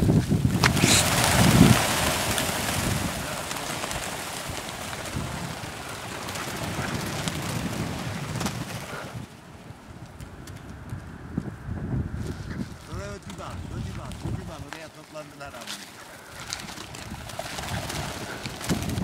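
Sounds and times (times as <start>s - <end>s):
flock of birds wings whirring: 0.0s - 11.0s, 15.4s - 19.0s.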